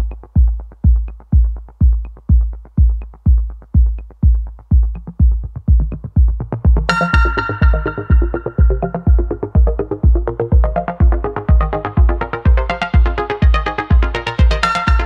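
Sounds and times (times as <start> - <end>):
electronic music with heavy kick drum: 0.0 - 15.0
bright synthesizer chords: 5.8 - 15.0.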